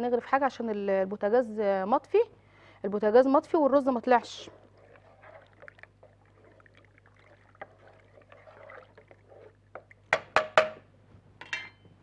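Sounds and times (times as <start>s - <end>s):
spoon stirring soup in a pot: 3.6s - 10.9s
spoon knocking on pot rim: 9.8s - 10.8s.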